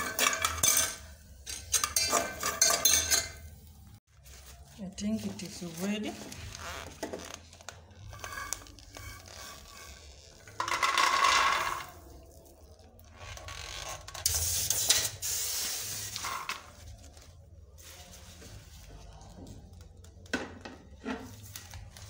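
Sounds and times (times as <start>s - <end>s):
metal pot clinking and scraping: 0.0s - 3.6s, 8.1s - 12.0s
nuts rattling in a metal pot: 10.5s - 12.0s.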